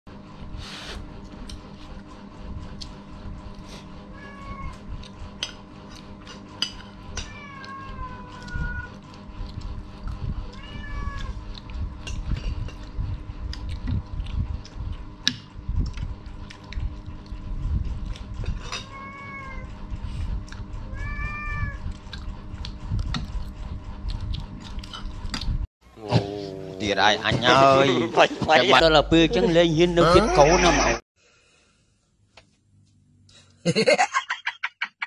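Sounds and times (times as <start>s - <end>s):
cat meowing: 4.1s - 4.8s, 7.2s - 9.0s, 10.5s - 11.4s, 18.9s - 19.7s, 20.9s - 21.8s.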